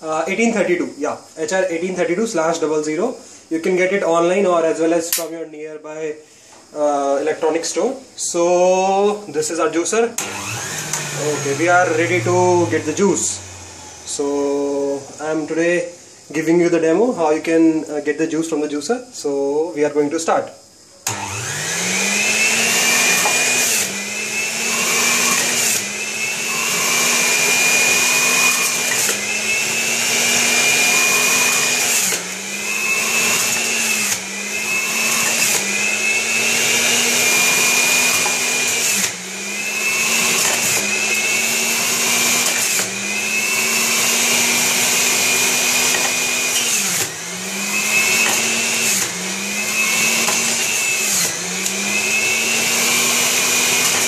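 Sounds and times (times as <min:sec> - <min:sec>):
juicer motor whirring: 0:10.2 - 0:14.8, 0:21.0 - 0:54.0.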